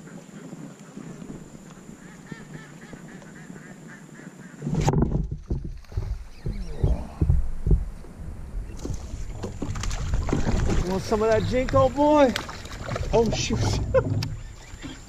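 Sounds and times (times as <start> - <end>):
ducks splashing in water: 8.8 - 14.9.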